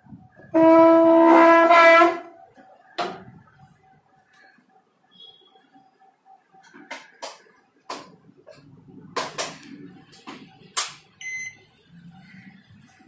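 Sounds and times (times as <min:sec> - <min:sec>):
microwave beep: 0:11.2 - 0:11.7.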